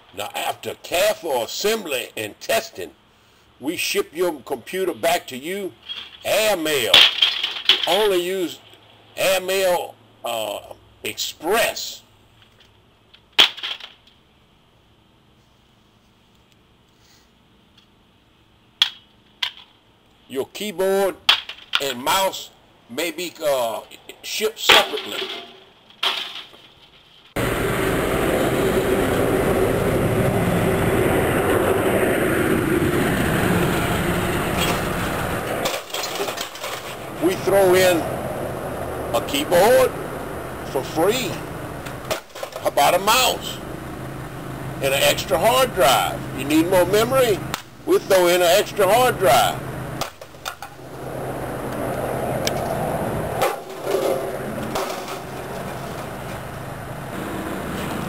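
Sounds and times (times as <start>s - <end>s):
computer parts clattering on concrete: 5.8s - 6.3s, 7.0s - 8.0s, 12.4s - 14.2s, 21.3s - 21.9s, 24.7s - 27.4s, 35.6s - 37.0s, 42.1s - 42.7s, 53.6s - 56.1s
jet flyover rushing drone: 27.4s - 58.0s.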